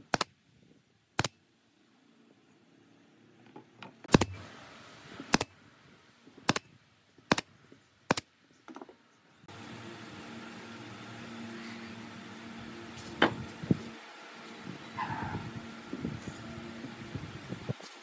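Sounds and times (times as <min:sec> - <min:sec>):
nail gun firing: 0:00.0 - 0:00.3, 0:04.1 - 0:04.4, 0:05.3 - 0:05.6, 0:06.4 - 0:06.7, 0:07.3 - 0:07.5, 0:08.1 - 0:08.3
sharp click: 0:01.2 - 0:01.4, 0:04.1 - 0:04.4, 0:08.1 - 0:08.3.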